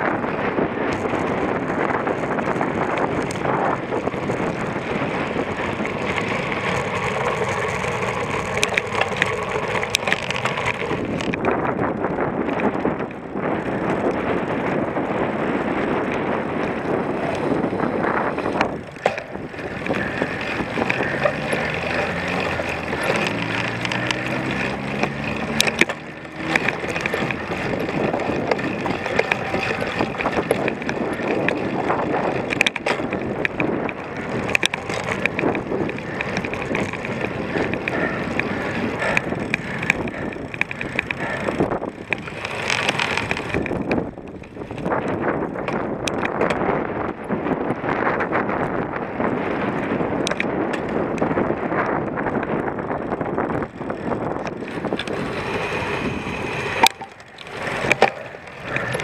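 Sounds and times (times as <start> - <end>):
bike rattling and knocking: 0.0 - 59.0
wind and tyre noise: 0.0 - 59.0.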